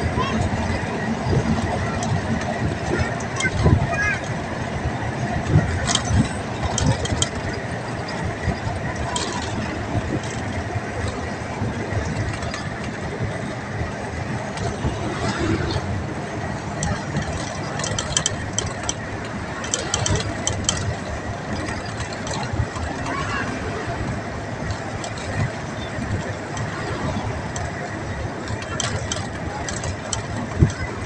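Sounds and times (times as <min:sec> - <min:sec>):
vehicle running noise: 0:00.0 - 0:31.0
short rattling clicks: 0:16.8 - 0:23.2.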